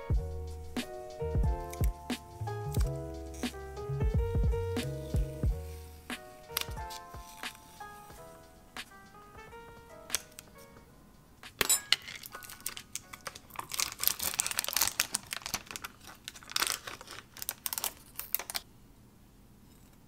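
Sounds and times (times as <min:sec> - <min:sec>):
packaging crinkling and crackling: 0:11.9 - 0:18.7.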